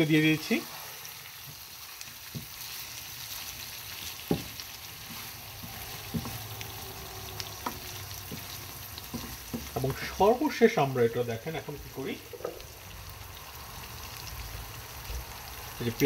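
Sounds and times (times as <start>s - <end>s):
meat sizzling in a pan: 0.0s - 16.0s
spatula knocking against pan: 7.6s - 10.0s.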